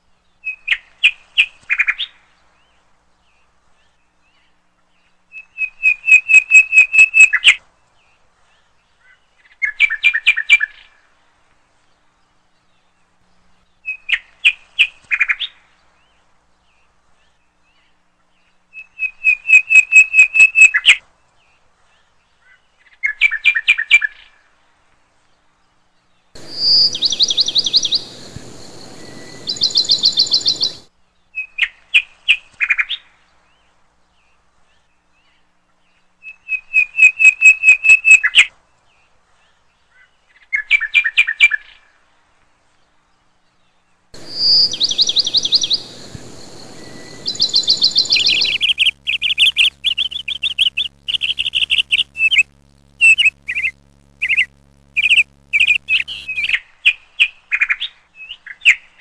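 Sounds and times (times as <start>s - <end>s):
background hiss: 26.4s - 30.9s, 44.2s - 56.6s
shrill bird phrase: 26.4s - 30.9s, 44.2s - 56.6s
songbird trilling: 26.4s - 30.9s, 44.2s - 56.6s.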